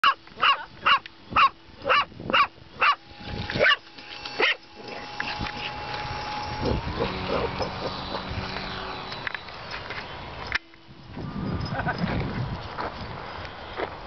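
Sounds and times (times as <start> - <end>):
dog barking: 0.0 - 3.0, 4.4 - 4.6
model plane motor whine: 1.6 - 12.7.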